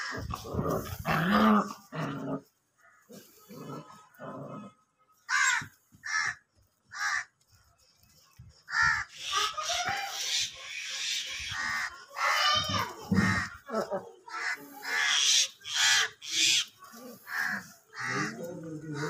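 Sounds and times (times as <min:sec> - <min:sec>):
crow cawing: 0:05.3 - 0:07.3, 0:08.7 - 0:09.2, 0:17.3 - 0:19.0.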